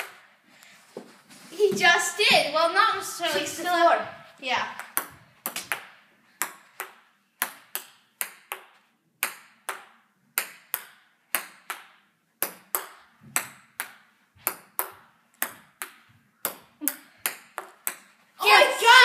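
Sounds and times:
ping-pong ball hitting paddles: 4.7 - 18.2.

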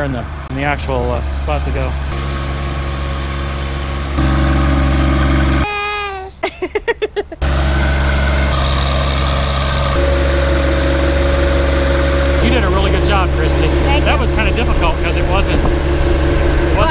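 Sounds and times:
tractor diesel engine running: 0.0 - 5.6, 6.6 - 16.9
high voice calling out: 5.6 - 6.4.

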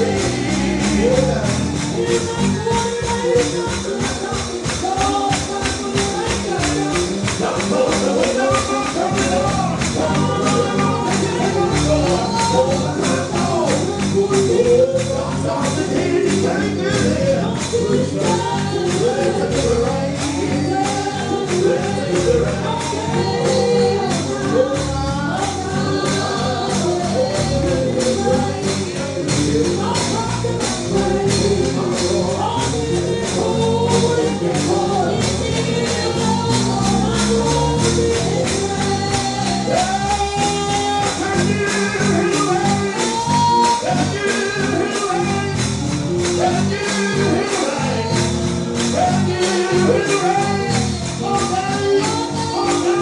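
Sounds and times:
gospel singing: 0.0 - 53.0
tambourine shaken on a beat: 0.0 - 53.0.

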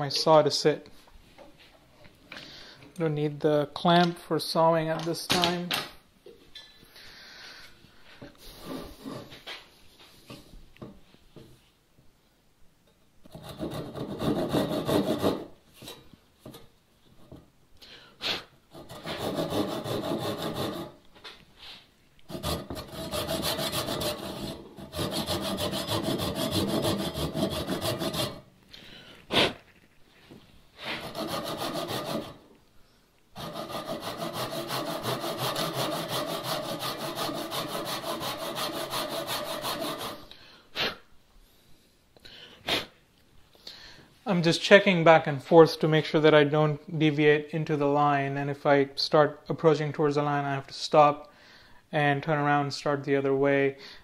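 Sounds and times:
hand saw cutting wood: 13.3 - 15.6, 18.7 - 21.0, 22.3 - 28.5, 30.8 - 32.4, 33.4 - 40.3.

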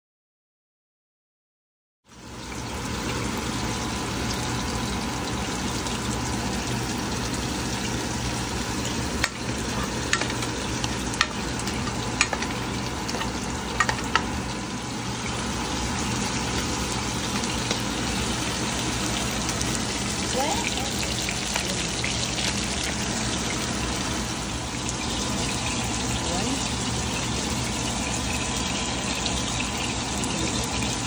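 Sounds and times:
onions sizzling in a pan: 2.1 - 31.0
spatula knocking against pan: 9.2 - 10.6, 11.2 - 14.4.

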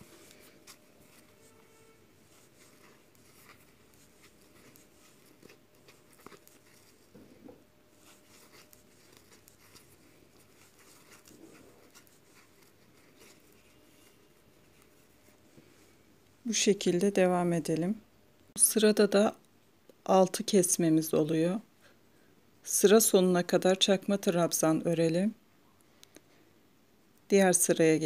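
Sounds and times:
crochet hook clicks and yarn rustles: 0.0 - 15.2.

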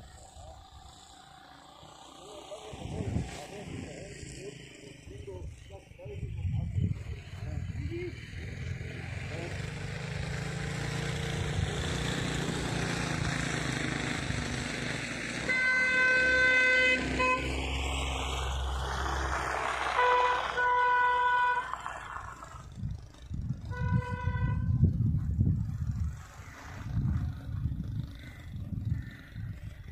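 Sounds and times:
vehicle engines rumbling: 0.0 - 29.9
vehicle horn honking: 15.4 - 17.5, 20.0 - 21.8, 23.7 - 24.9
rough low rumbling: 21.9 - 29.9.

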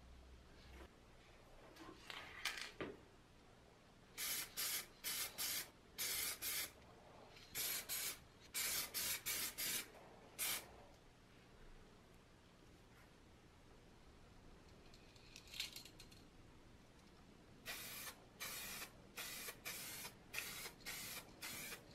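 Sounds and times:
spray paint can hissing: 4.2 - 6.8, 7.5 - 10.7, 17.6 - 21.9.

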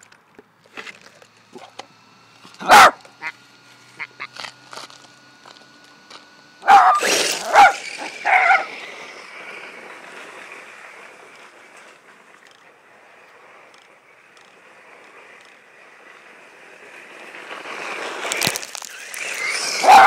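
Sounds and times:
dog barking: 2.6 - 3.0, 6.6 - 8.7.

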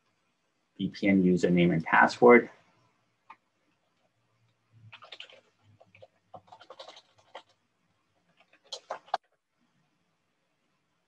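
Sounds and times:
keyboard typing: 4.8 - 7.6, 8.2 - 9.3.

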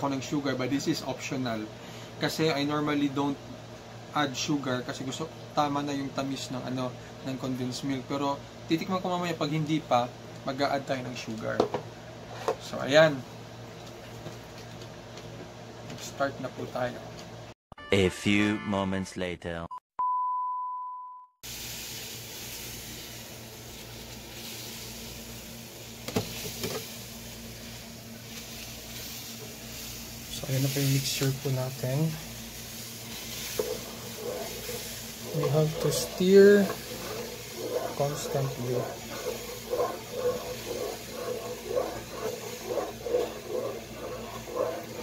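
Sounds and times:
pot heating hiss: 21.4 - 45.0.

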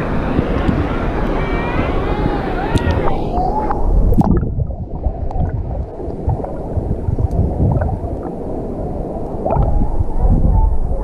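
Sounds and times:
underwater rumble of moving water: 0.0 - 11.0
faint clicks: 2.2 - 3.8.

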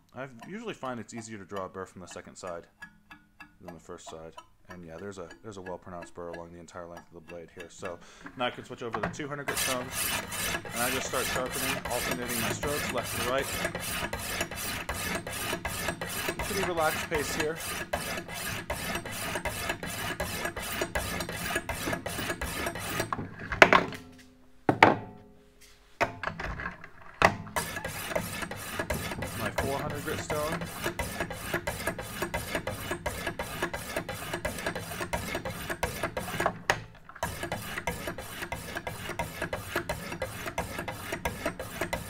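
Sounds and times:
stone handles clacking: 0.3 - 24.0
sharpening stones rasping on knife: 9.5 - 23.1, 27.6 - 36.5, 37.2 - 42.0.

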